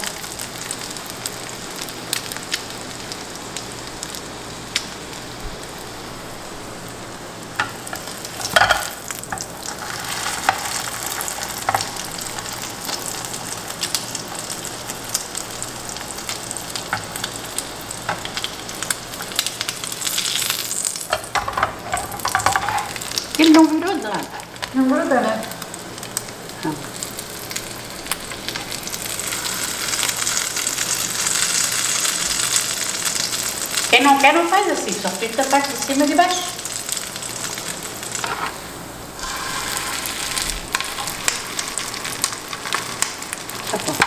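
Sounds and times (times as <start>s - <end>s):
sandwich sizzling in butter: 0.0s - 44.0s
spatula and fork scraping pan: 39.2s - 41.2s.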